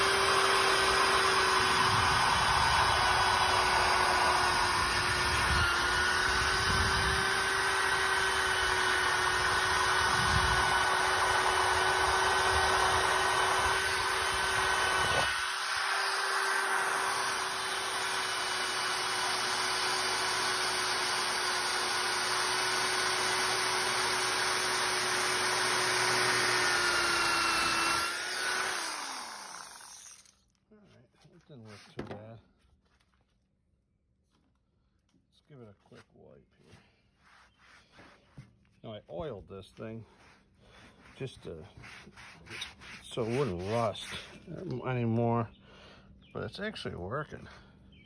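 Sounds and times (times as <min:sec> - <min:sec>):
drill motor whine: 0:00.0 - 0:30.4
wire bristles scratching metal: 0:41.0 - 0:44.5.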